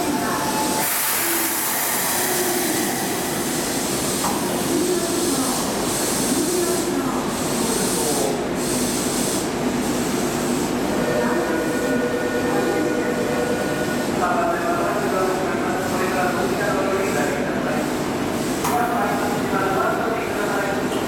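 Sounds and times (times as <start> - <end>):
train equipment running: 0.0 - 8.3.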